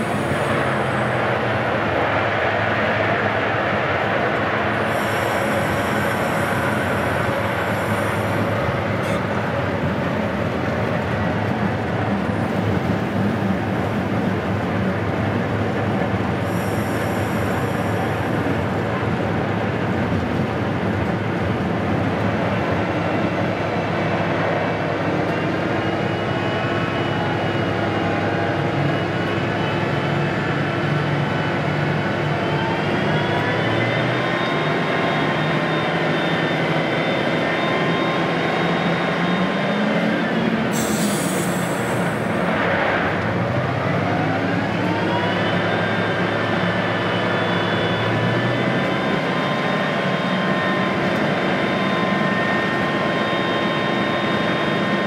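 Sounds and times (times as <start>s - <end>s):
whine rising in pitch: 0.0s - 14.9s, 16.4s - 40.8s, 41.5s - 55.0s
diesel locomotive engines running: 0.0s - 55.0s
high squeal: 31.4s - 42.6s, 44.5s - 55.0s.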